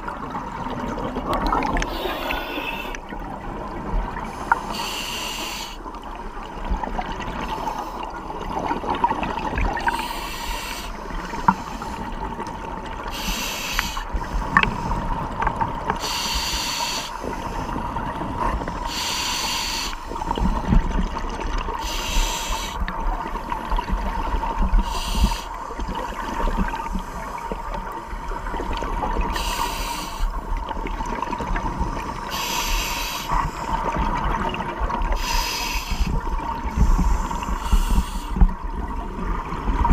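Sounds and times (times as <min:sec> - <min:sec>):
bubbling exhaled air underwater: 0:00.0 - 0:04.6.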